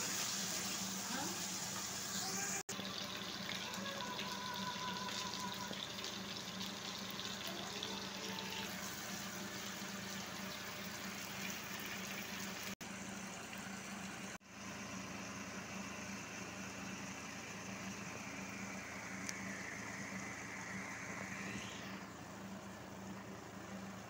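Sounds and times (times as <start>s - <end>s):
food sizzling in a frying pan: 0.0s - 13.1s.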